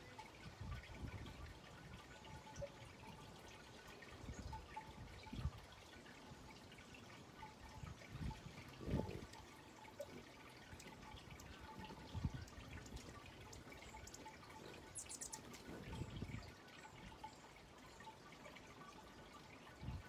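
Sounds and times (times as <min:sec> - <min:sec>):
faint high chirps: 0:14.9 - 0:15.5.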